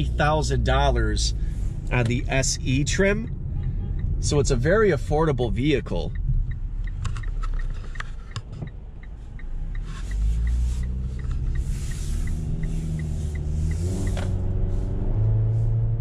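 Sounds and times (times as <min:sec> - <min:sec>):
road noise: 0:00.0 - 0:16.0
turn signal ticking: 0:00.0 - 0:16.0
car engine note rising: 0:09.6 - 0:16.0.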